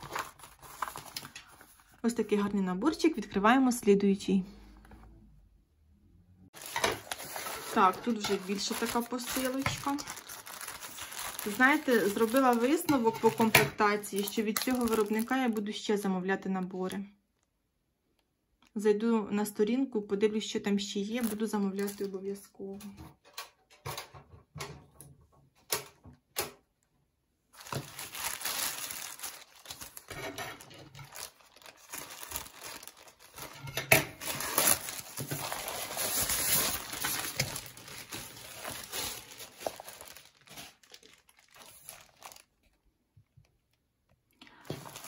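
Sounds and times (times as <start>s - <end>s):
packaging crinkling and tearing: 0.0s - 2.0s, 6.6s - 15.6s, 21.2s - 22.2s, 27.5s - 42.9s, 44.6s - 45.0s.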